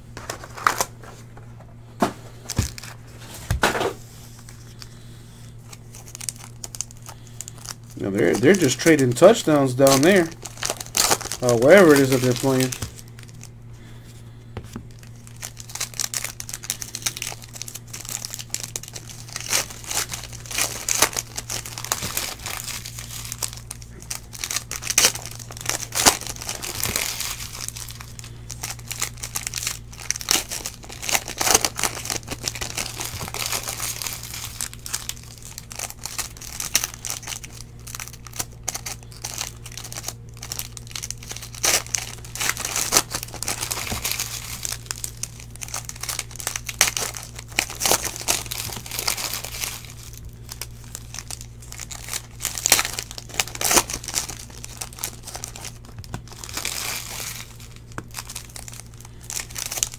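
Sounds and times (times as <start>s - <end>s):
foil wrappers crinkling and tearing: 0.0s - 59.9s
steady low hum: 0.0s - 59.9s
cards handled: 5.6s - 13.4s.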